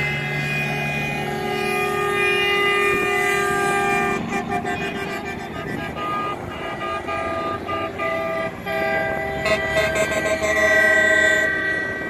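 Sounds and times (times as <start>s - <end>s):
passing trucks: 0.0s - 12.0s
truck air horns honking: 0.0s - 12.0s.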